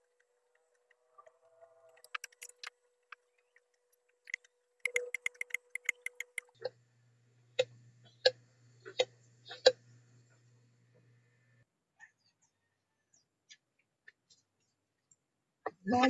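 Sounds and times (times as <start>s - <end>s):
clicks of parts handled: 2.0s - 2.7s.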